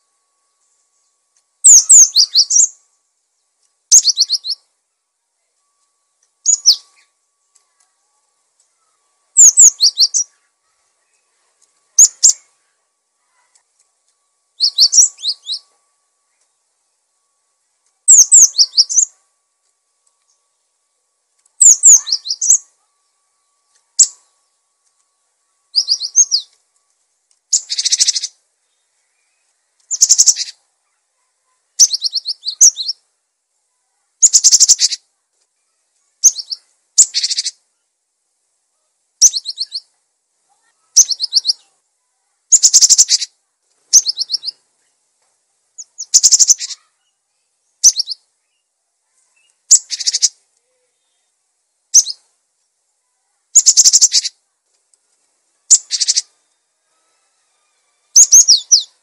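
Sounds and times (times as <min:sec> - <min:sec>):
bird singing high phrases: 0:00.0 - 0:26.9, 0:27.5 - 0:33.1, 0:33.7 - 0:37.9, 0:39.2 - 0:40.0, 0:40.6 - 0:41.8, 0:42.5 - 0:45.0, 0:45.8 - 0:52.4, 0:53.0 - 0:54.5, 0:55.6 - 0:59.0.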